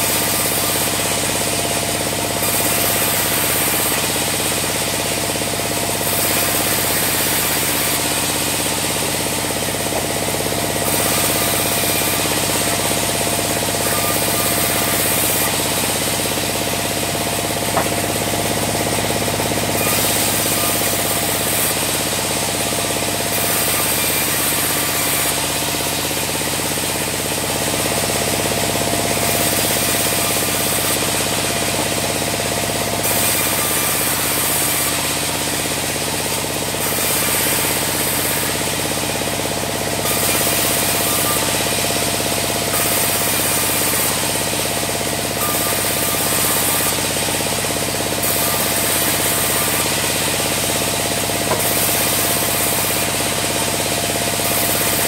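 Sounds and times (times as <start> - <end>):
bandsaw sawing logs: 0.0 - 55.0
sharp knock: 17.7 - 18.1.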